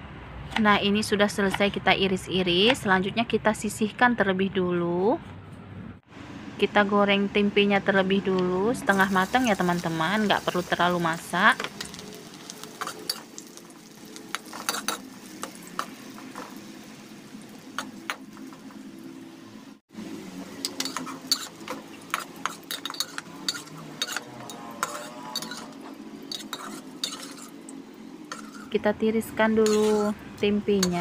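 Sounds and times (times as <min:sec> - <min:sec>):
food frying in hot oil: 0:08.9 - 0:31.0
metal spatula scraping pan: 0:14.0 - 0:16.6, 0:20.5 - 0:28.8, 0:29.6 - 0:30.2.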